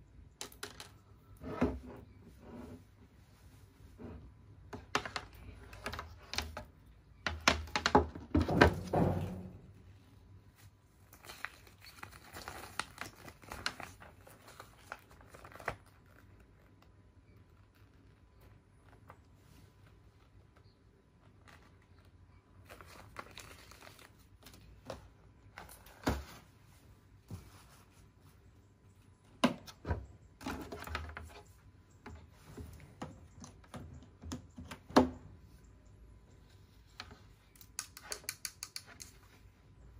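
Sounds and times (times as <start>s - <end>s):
paper crinkling: 10.6s - 25.0s.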